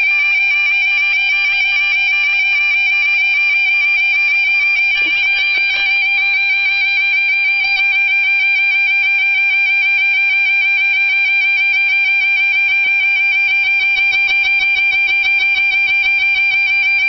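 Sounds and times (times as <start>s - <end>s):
level crossing warbling alarm: 0.0s - 7.9s.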